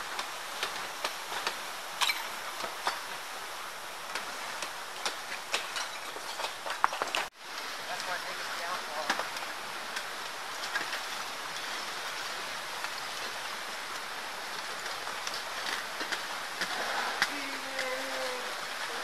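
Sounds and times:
waterfall rushing: 7.3 - 19.0.

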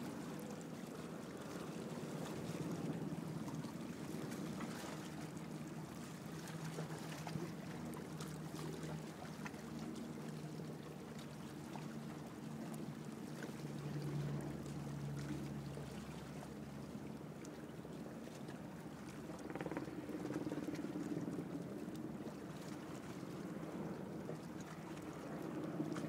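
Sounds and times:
boat motor hum: 0.0 - 26.0
water lapping and sloshing: 0.0 - 26.0
small splashy ticks: 18.3 - 23.3.

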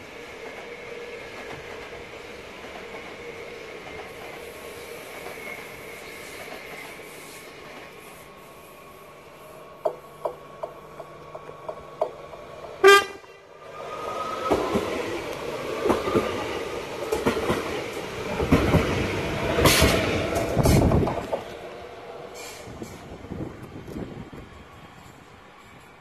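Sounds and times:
train wheels clacking on rails: 9.8 - 13.0, 14.0 - 21.7
train horn blast: 12.8 - 13.4.

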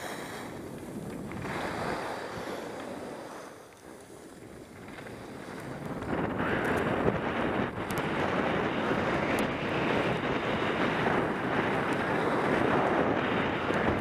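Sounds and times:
skis hissing over snow: 0.0 - 7.6, 10.6 - 13.2
wind buffeting microphone: 0.0 - 14.0.

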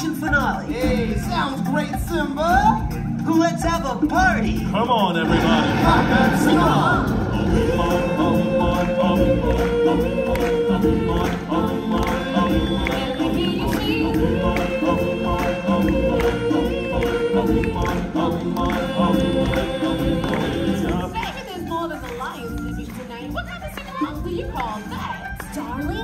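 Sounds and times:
percussion beat: 0.0 - 26.0
choir singing long notes: 5.2 - 21.1.

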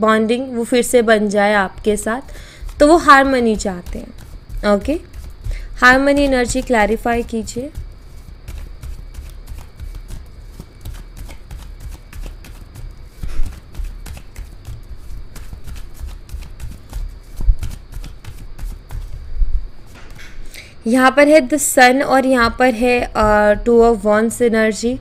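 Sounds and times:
cards being shuffled: 1.7 - 19.3.

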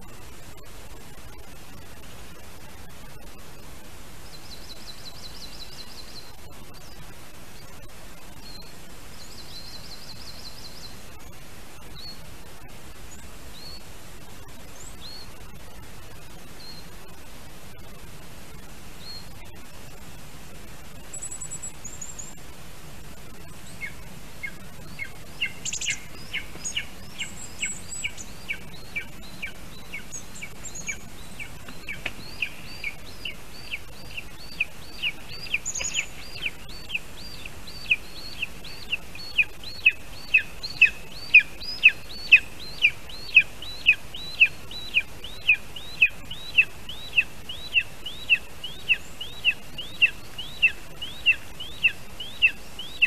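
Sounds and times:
faint high chirps: 23.1 - 53.0
eagle calling: 23.4 - 53.0.

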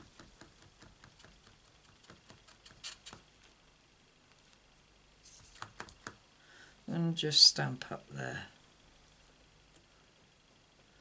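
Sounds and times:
stamp block tapping on ink pad: 0.0 - 2.5.

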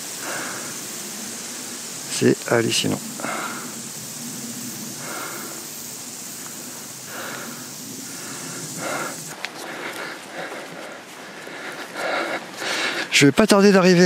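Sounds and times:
person breathing: 0.0 - 1.6, 3.1 - 4.0, 4.8 - 13.2
steady hiss: 0.0 - 14.0.

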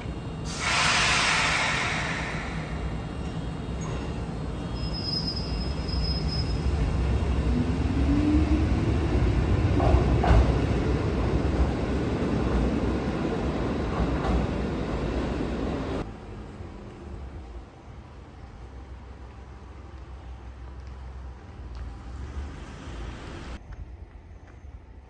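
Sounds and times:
electric train rumbling on rails: 0.0 - 25.0
high-pitched wheel squeal: 3.8 - 6.9.

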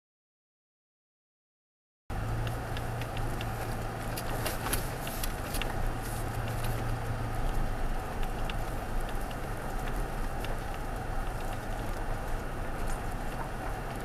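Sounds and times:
low engine hum: 2.1 - 14.0
small clicks and crackles: 2.4 - 14.0
tyres rolling over dirt and stones: 3.0 - 14.0.

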